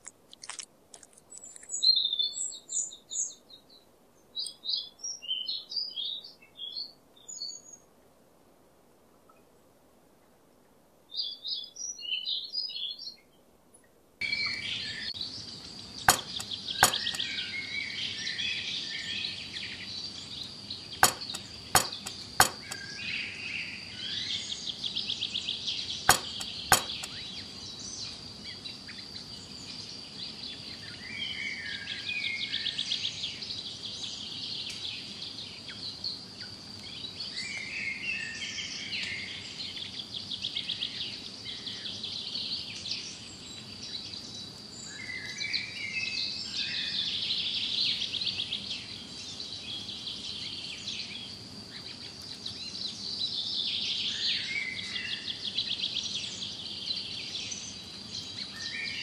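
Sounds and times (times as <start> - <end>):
birds chirping: 14.2 - 18.3
sharp clicks: 16.1 - 17.3, 21.0 - 22.8, 26.1 - 27.2.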